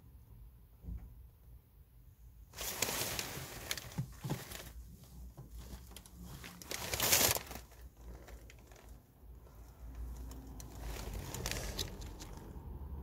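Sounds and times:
rustling and crackling: 0:02.5 - 0:12.6.

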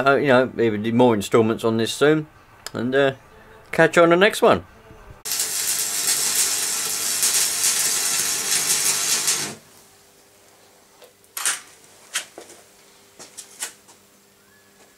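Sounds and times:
arc welding crackling and hissing: 0:05.2 - 0:10.0.

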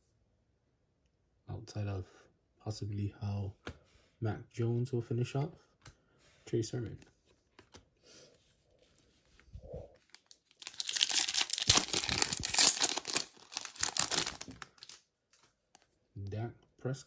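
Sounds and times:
foil wrapper tearing and crinkling: 0:10.2 - 0:15.0.

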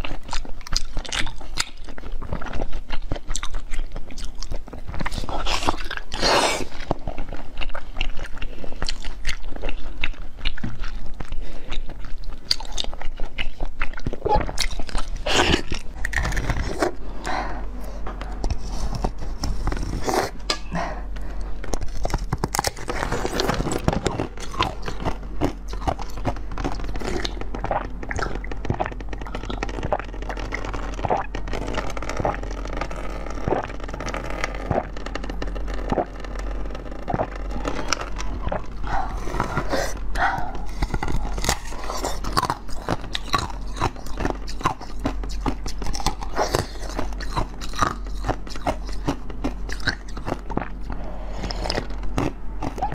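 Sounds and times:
crunching frozen ice: 0:21.7 - 0:52.9.

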